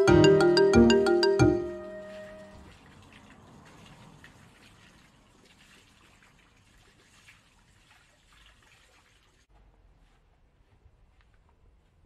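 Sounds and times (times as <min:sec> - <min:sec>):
water trickling and splashing: 0:01.6 - 0:09.5.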